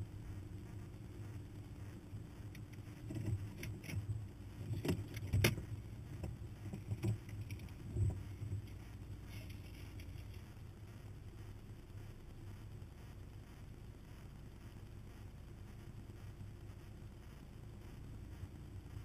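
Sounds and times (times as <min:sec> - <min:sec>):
sharp clicks and rattles: 0:00.6 - 0:10.5.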